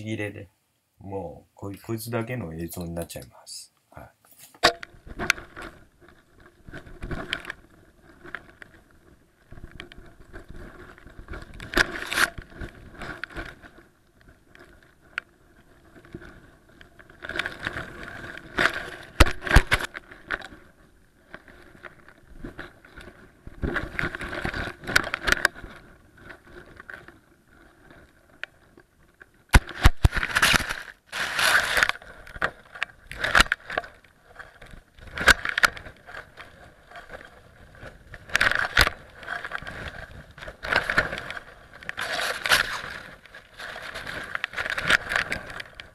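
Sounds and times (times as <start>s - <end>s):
kite fabric rustling: 4.2s - 45.9s.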